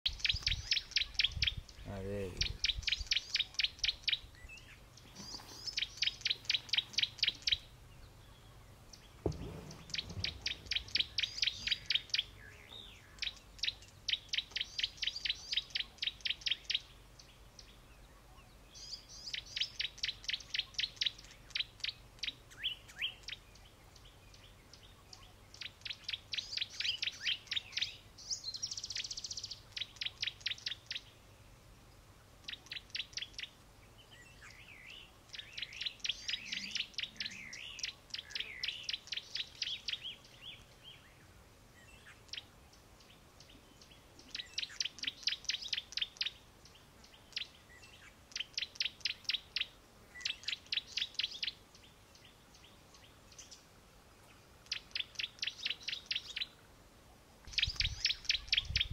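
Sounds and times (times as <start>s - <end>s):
bird chirping rapidly: 0.1s - 17.8s, 18.8s - 31.2s, 32.4s - 33.6s, 34.3s - 40.6s, 43.5s - 46.4s, 47.0s - 51.9s, 54.6s - 56.5s, 57.5s - 58.9s
dull low thump: 9.2s - 11.1s.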